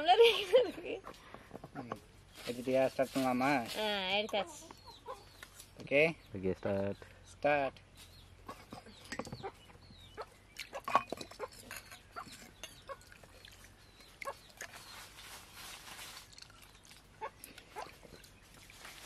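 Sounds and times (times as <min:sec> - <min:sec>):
steel tumblers clinking on pot: 0:10.7 - 0:13.1.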